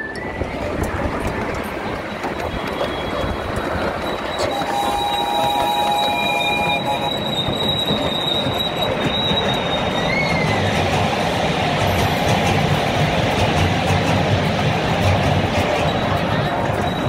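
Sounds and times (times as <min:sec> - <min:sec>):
miniature train rolling rumble: 0:00.0 - 0:17.0
high wheel squeal: 0:02.0 - 0:10.8, 0:15.6 - 0:17.0.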